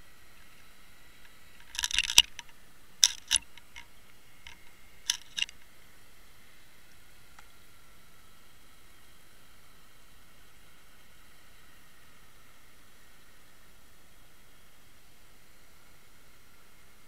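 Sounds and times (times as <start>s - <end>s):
underwater clicks and knocks: 1.6s - 3.9s, 4.5s - 5.5s.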